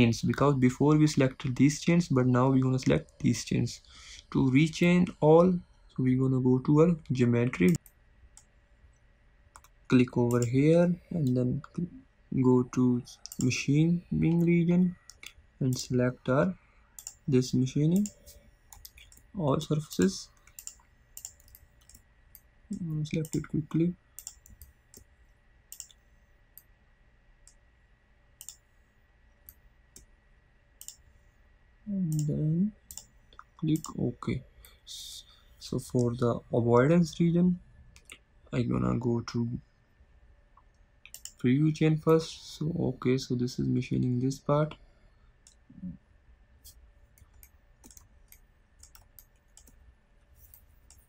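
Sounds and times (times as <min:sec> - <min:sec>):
computer mouse clicks: 0:09.5 - 0:10.6, 0:13.2 - 0:13.6, 0:17.0 - 0:19.3, 0:20.4 - 0:22.5, 0:23.2 - 0:23.5, 0:24.2 - 0:25.1, 0:25.7 - 0:26.0, 0:28.4 - 0:28.6, 0:30.8 - 0:31.0, 0:32.1 - 0:32.3, 0:32.9 - 0:34.0, 0:40.6 - 0:41.4, 0:46.6 - 0:51.0.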